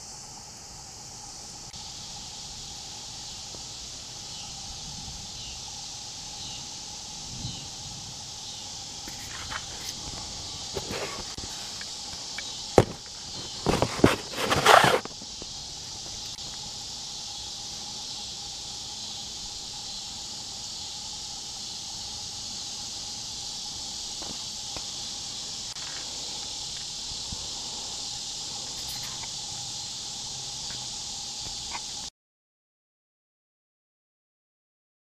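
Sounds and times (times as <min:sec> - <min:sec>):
insects buzzing: 0:00.0 - 0:32.1
loud scuffing noise: 0:09.1 - 0:15.1.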